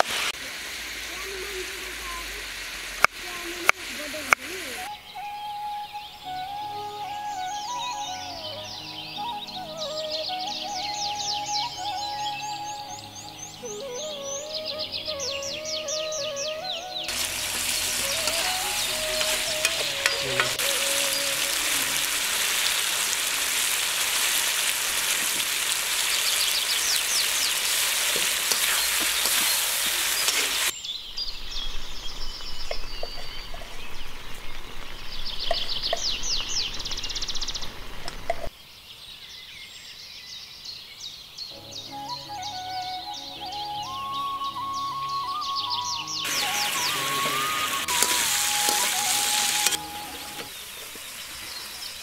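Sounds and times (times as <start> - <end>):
curry sizzling in a wok: 0.0 - 4.9, 17.1 - 30.8, 46.2 - 52.0
birds chirping: 3.2 - 52.0
spatula scraping a wok: 17.1 - 20.9, 27.6 - 30.7, 47.9 - 50.5.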